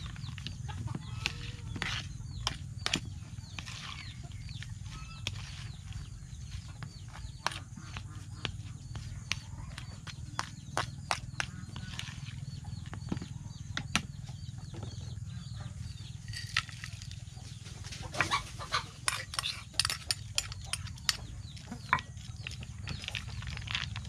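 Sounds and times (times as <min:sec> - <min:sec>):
chickens peeping and clucking: 0:00.0 - 0:24.0
metal spoon scraping plastic bowl: 0:00.4 - 0:08.0, 0:16.2 - 0:17.1, 0:19.0 - 0:21.2.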